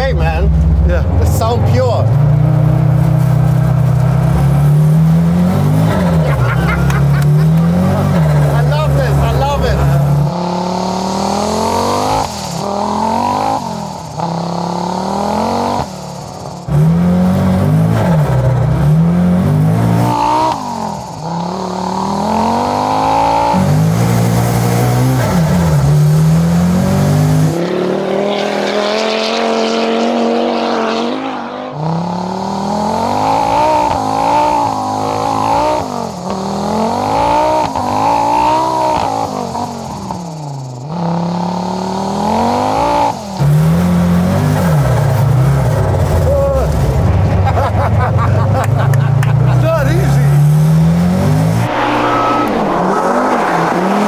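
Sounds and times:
rally car engine revving: 0:00.0 - 0:54.0
hissing noise: 0:51.4 - 0:54.0.

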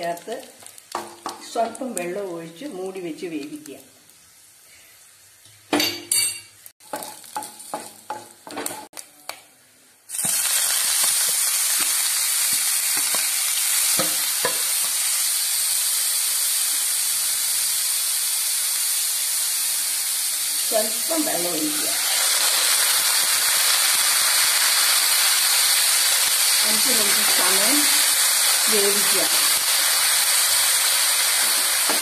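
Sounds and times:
food sizzling in hot oil: 0:00.0 - 0:09.1, 0:10.0 - 0:32.0
knocks and clinks on pan: 0:05.7 - 0:08.9.

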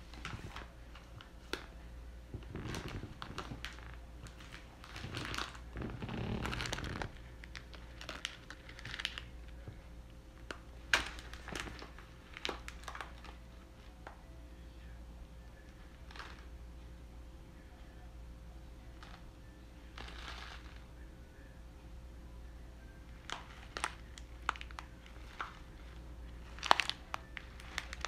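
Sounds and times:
plastic packaging rustling: 0:00.0 - 0:01.7, 0:02.4 - 0:09.8, 0:10.4 - 0:14.2, 0:16.0 - 0:16.5, 0:20.0 - 0:20.8, 0:23.2 - 0:28.0.

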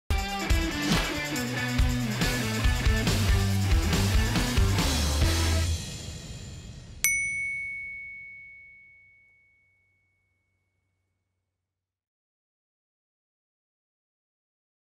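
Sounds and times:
outro music: 0:00.2 - 0:07.0
bell-like ding: 0:07.0 - 0:10.6.

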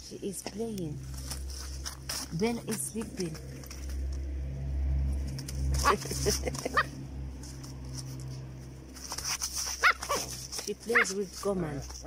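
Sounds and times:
low steady rumble: 0:00.0 - 0:12.0
puppy crying: 0:09.8 - 0:10.2.

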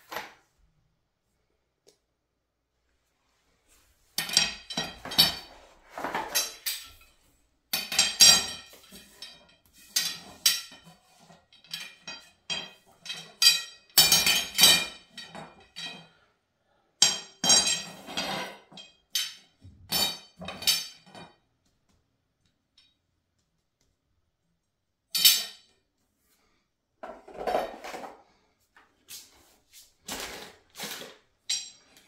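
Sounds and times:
metal tubes clinking and knocking: 0:04.0 - 0:16.3, 0:17.0 - 0:21.5, 0:25.1 - 0:25.9, 0:30.1 - 0:32.0.

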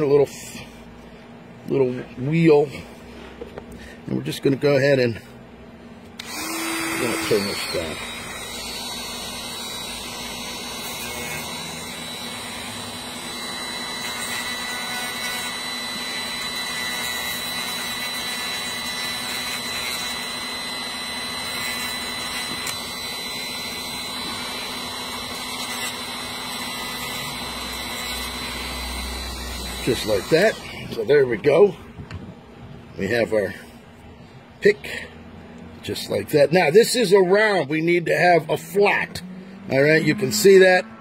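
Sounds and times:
rotary tool grinding: 0:06.2 - 0:31.6.

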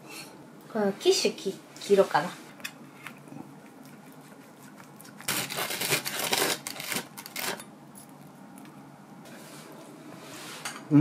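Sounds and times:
knife crunching through crust: 0:03.8 - 0:08.2.

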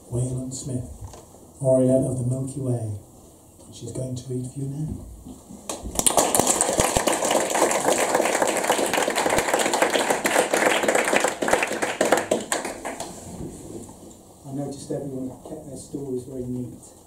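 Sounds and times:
audience applause: 0:05.9 - 0:13.1.

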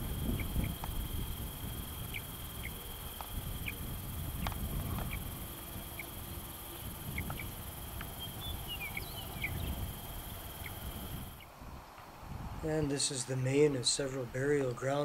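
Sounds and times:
insects trilling: 0:00.0 - 0:11.5
bird chirps: 0:01.9 - 0:11.5.

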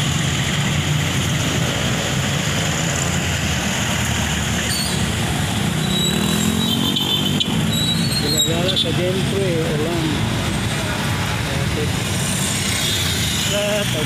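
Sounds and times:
vehicle engines in traffic: 0:00.0 - 0:14.0.

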